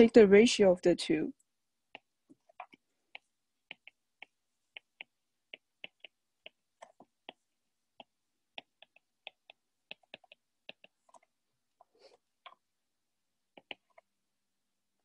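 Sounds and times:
stylus tapping on glass screen: 1.9s - 11.3s, 13.5s - 14.1s.

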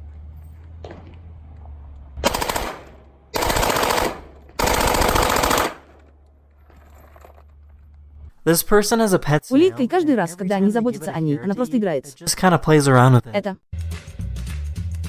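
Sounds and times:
automatic gunfire bursts: 2.2s - 6.0s.

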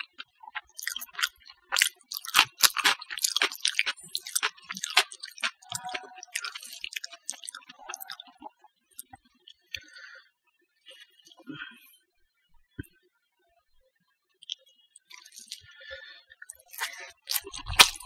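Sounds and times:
fingers squeezing sticky rice: 0.0s - 8.2s, 14.5s - 15.6s, 16.5s - 18.0s.

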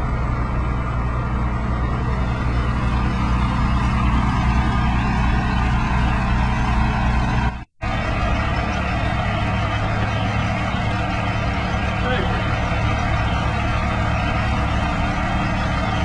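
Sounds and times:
diesel truck engine running: 0.0s - 16.0s.

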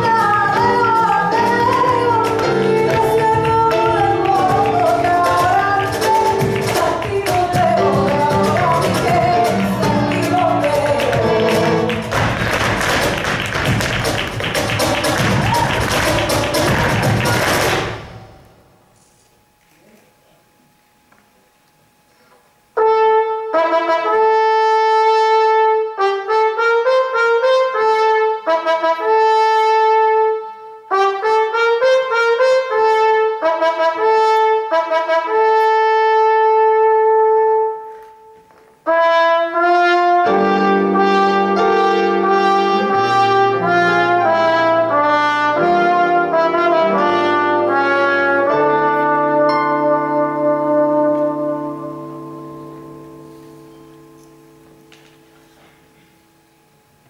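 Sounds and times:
slow trumpet melody: 22.6s - 57.0s
low sustained accompanying notes: 47.7s - 56.8s.

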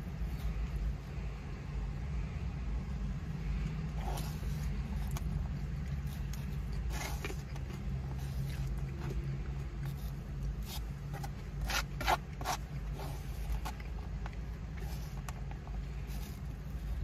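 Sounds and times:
steady low hum: 0.0s - 17.0s
plastic fork scraping foam container: 3.9s - 17.0s.

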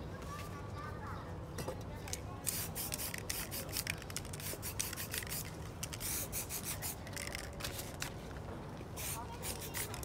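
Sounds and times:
aerosol spray can hissing: 2.5s - 7.1s, 9.0s - 10.0s
paper rubbing on wet paint: 9.0s - 10.0s.

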